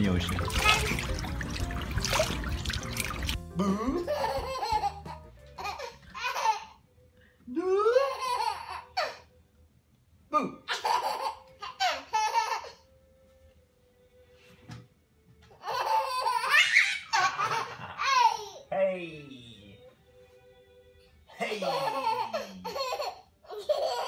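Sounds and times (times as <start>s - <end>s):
baby laughing: 2.2s - 6.8s, 7.8s - 9.3s, 10.7s - 12.9s, 15.5s - 18.7s, 21.4s - 24.0s.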